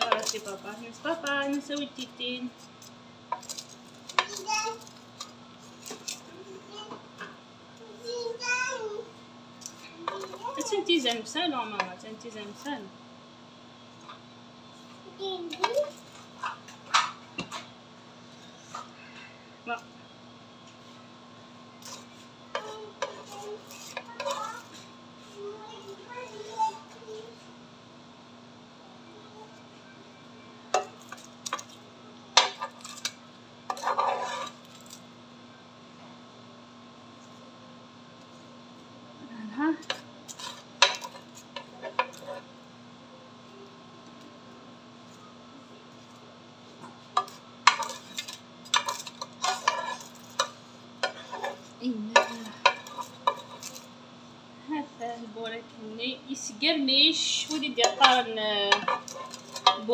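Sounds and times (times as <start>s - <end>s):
faint steady hum: 0.0s - 59.9s
metal tongs clinking on ceramic plate: 47.2s - 53.8s, 57.4s - 59.9s.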